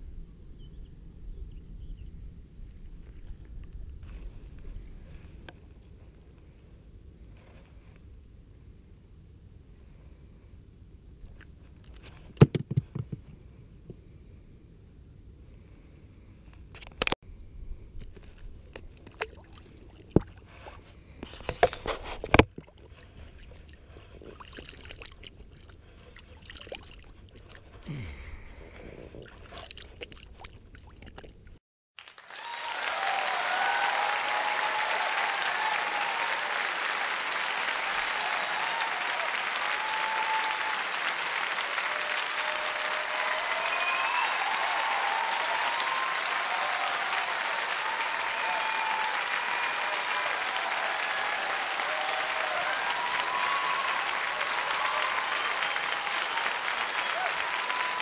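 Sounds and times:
crowd applause: 0:32.0 - 0:58.0.

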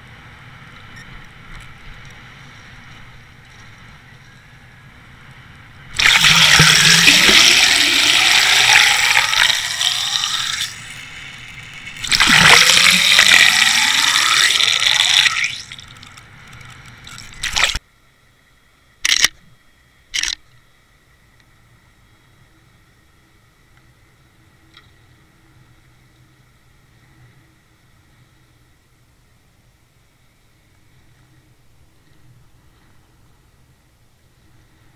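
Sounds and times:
water rushing and bubbling: 0:05.9 - 0:16.1, 0:17.0 - 0:17.8.

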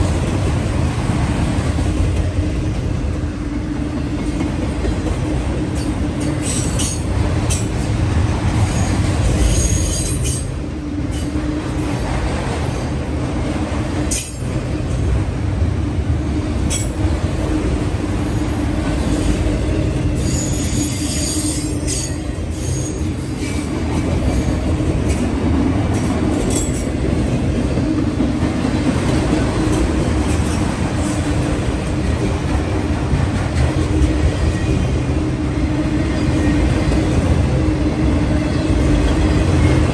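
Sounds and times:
train wheels rumbling on rail: 0:00.0 - 0:39.9
high-pitched wheel squeals: 0:08.7 - 0:10.5, 0:20.2 - 0:23.6.

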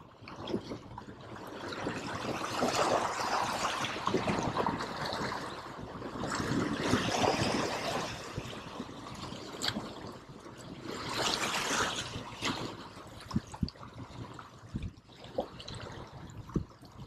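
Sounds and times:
waves splashing against rocks: 0:01.6 - 0:10.2, 0:10.8 - 0:13.6.

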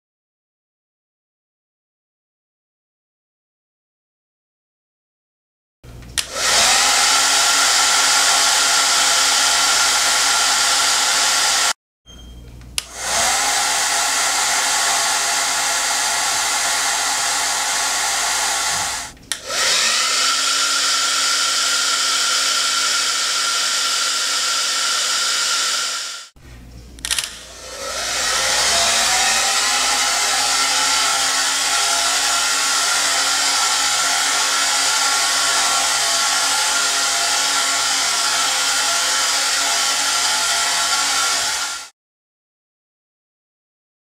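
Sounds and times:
hair dryer blowing: 0:06.2 - 0:11.8, 0:12.8 - 0:26.4, 0:27.0 - 0:41.9.

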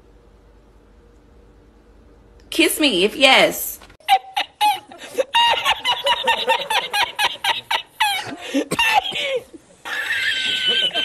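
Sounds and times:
man's squeaky wheezing laugh: 0:04.0 - 0:11.0.

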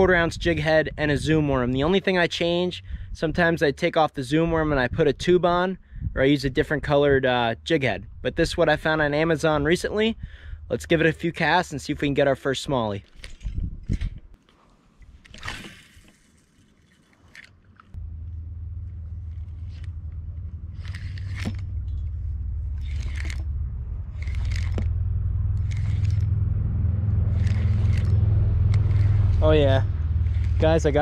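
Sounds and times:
wind rumbling on microphone: 0:00.0 - 0:03.6, 0:04.4 - 0:10.8, 0:13.1 - 0:14.4, 0:18.0 - 0:31.0
fishing reel scraping: 0:19.3 - 0:20.0, 0:20.7 - 0:22.0, 0:22.7 - 0:23.5, 0:24.1 - 0:24.9, 0:25.6 - 0:26.4, 0:27.3 - 0:31.0.

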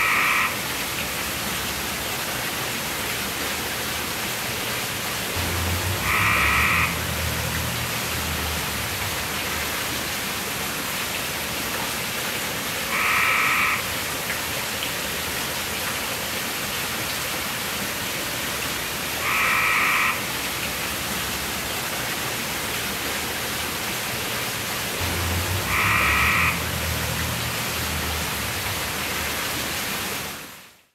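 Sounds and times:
frog croaking: 0:00.0 - 0:00.6, 0:05.4 - 0:09.4, 0:12.9 - 0:13.9, 0:19.2 - 0:20.3, 0:25.0 - 0:29.2
water falling down fountain: 0:00.0 - 0:30.9.

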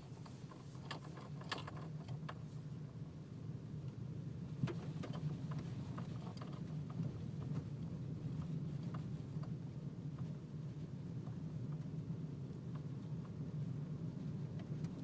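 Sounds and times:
vehicle engine and tyre hum: 0:00.0 - 0:15.0
small clicks and ticks: 0:04.6 - 0:10.4, 0:11.2 - 0:13.4.

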